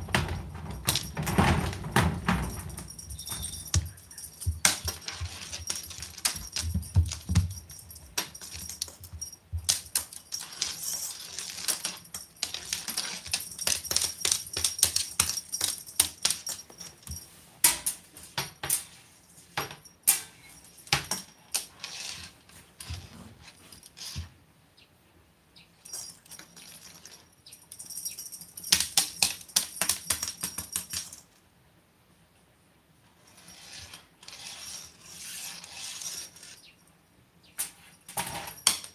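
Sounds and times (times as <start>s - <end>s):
cat collar bell jingling: 0.4s - 17.5s, 25.8s - 31.3s.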